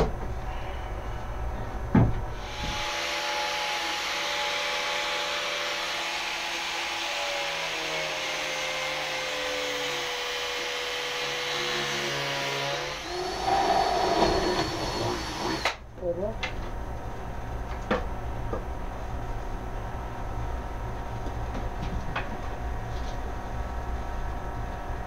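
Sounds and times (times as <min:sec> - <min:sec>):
drill whining: 0:02.4 - 0:15.8.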